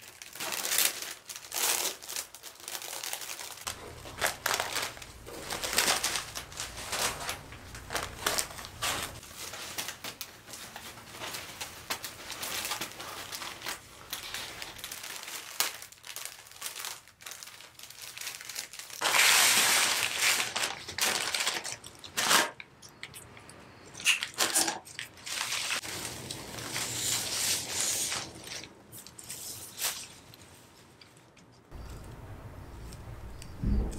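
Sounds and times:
plastic wrapping crinkling: 0.0 - 23.2, 23.9 - 32.2.

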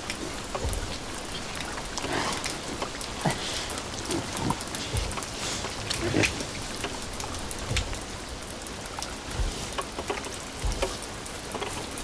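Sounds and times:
rain pattering and dripping: 0.0 - 12.0
dull low thumps: 0.3 - 8.4, 9.2 - 9.8, 10.6 - 11.1.

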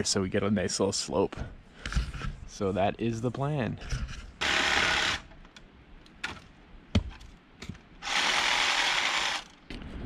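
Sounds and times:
reciprocating saw cutting wood: 4.4 - 5.3, 8.0 - 9.6.

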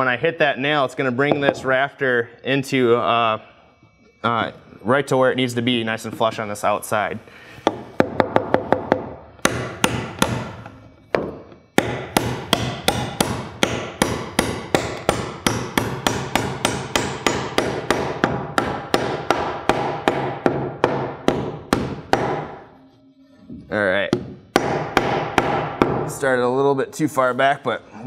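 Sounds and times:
hammer driving nail into wood: 7.7 - 22.6.

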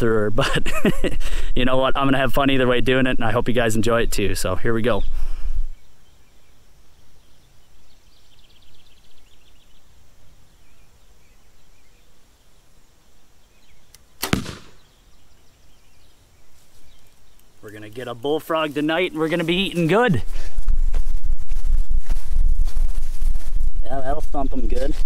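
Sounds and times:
faint outdoor background: 0.0 - 25.0
bow string snap: 13.9 - 14.8.

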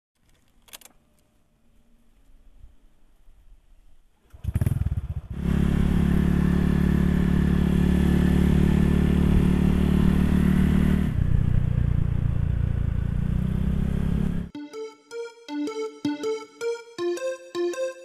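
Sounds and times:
scooter engine running: 4.3 - 14.5.

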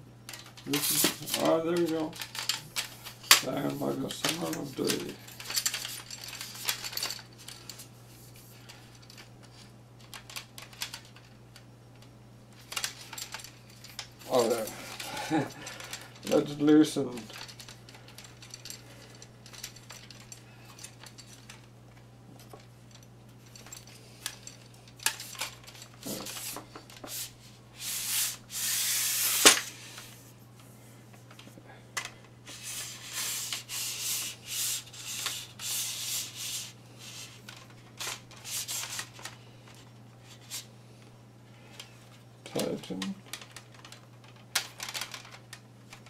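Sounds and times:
tripod legs rasping slide: 26.0 - 30.2.

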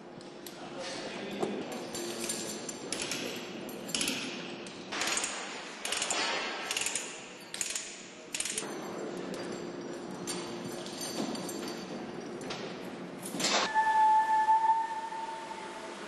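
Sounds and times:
steel chains rattling and clinking: 1.6 - 13.4.

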